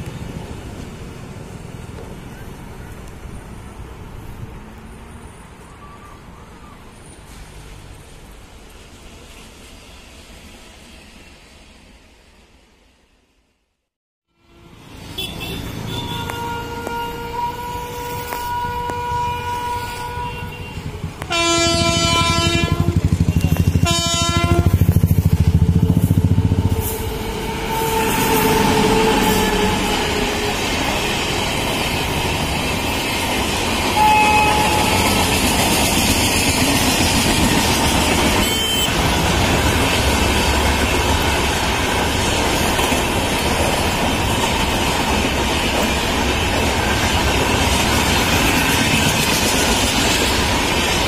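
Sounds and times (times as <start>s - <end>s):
train horn blasts: 14.3s - 30.6s, 33.9s - 35.3s, 38.4s - 39.0s
train wheels rumbling on rails: 14.9s - 51.0s.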